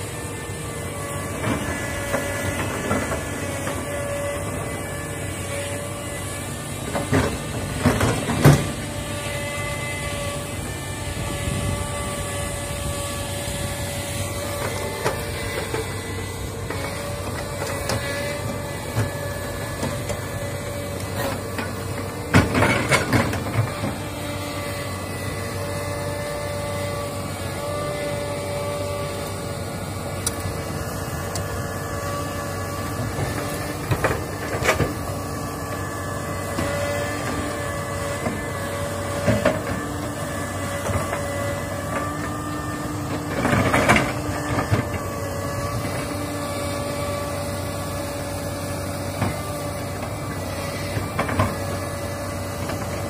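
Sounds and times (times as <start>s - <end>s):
hydraulic whine: 0.0s - 53.0s.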